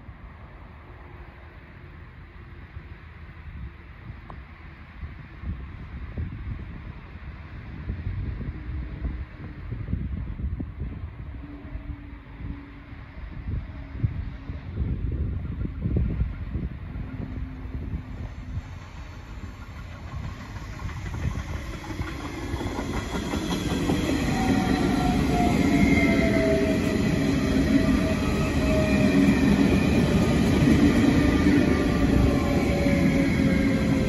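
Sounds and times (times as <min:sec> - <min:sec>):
train wheels rumbling on rails: 0:01.3 - 0:34.0
train motor whine: 0:11.3 - 0:34.0.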